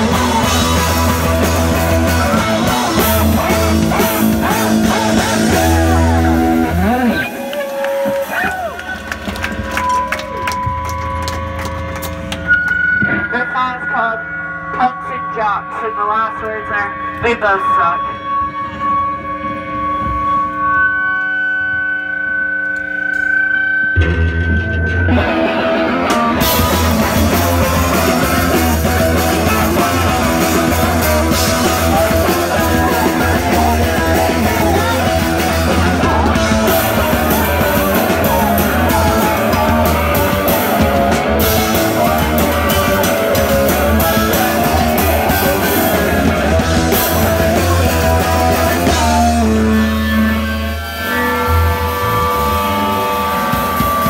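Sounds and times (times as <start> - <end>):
punk rock band playing: 0.0 - 21.1, 23.0 - 54.0.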